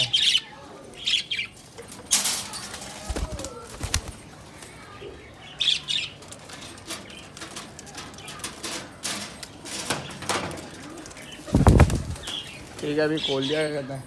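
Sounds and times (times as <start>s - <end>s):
pigeons flapping wings: 2.7s - 4.7s, 10.3s - 12.8s
wire cage rattling and clicking: 6.1s - 12.4s.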